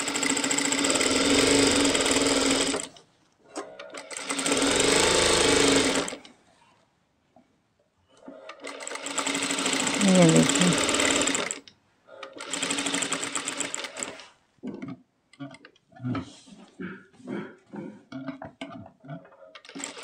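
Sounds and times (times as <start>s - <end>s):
sewing machine whirring: 0.0s - 6.3s, 8.2s - 14.4s, 19.6s - 20.0s.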